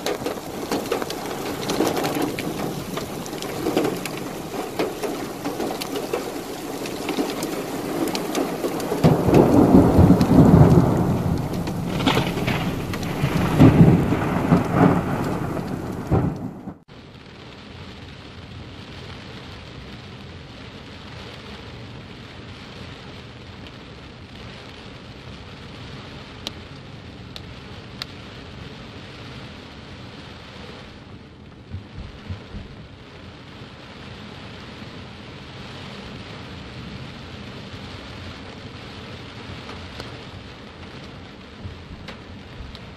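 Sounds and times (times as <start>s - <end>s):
loud rumbling surges: 0.0s - 16.8s
heavy rain on car roof: 0.0s - 42.9s.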